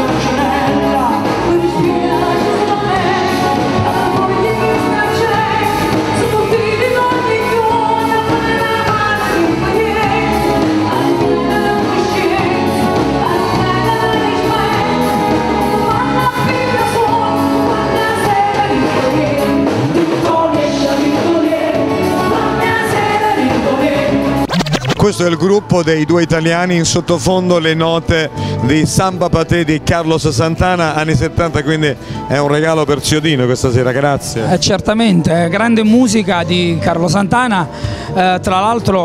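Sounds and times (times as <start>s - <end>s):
woman and man singing: 0.0s - 24.4s
pop band playing: 0.0s - 39.0s.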